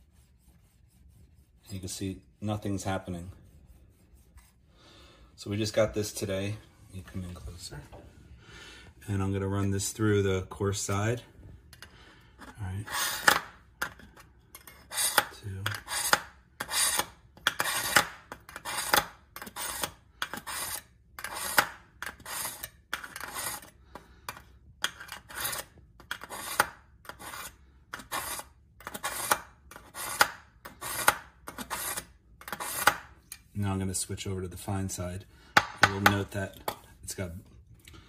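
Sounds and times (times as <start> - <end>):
knife scraping through sharpener: 14.6 - 23.7, 24.8 - 33.4.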